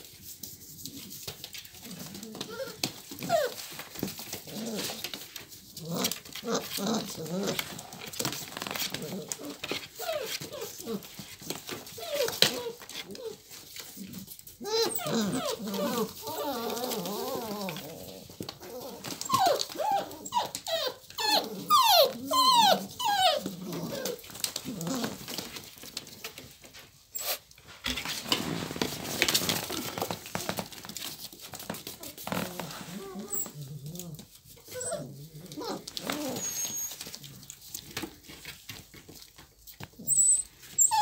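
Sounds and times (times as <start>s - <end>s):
puppies whining and yelping: 1.8s - 5.2s, 5.9s - 25.4s, 34.5s - 37.6s, 40.0s - 41.0s.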